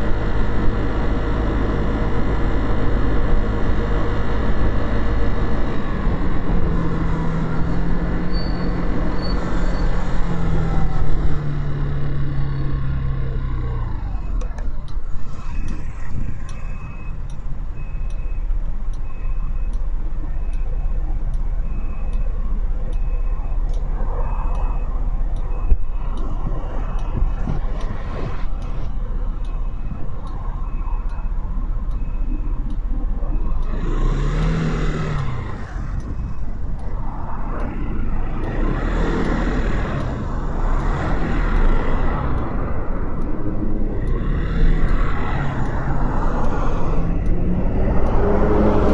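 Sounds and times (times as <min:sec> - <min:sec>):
vehicles passing: 0:00.0 - 0:48.9
faint repeating beep: 0:13.8 - 0:36.5.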